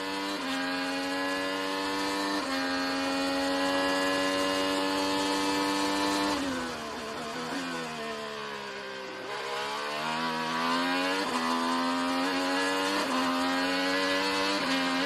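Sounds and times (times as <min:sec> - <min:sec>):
race car engine at full throttle: 0:00.0 - 0:15.0.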